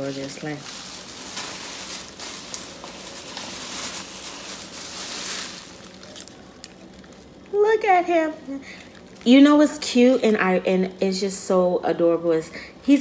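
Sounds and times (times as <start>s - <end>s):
plastic bag rustling and crinkling: 0.0s - 7.6s, 8.2s - 10.6s.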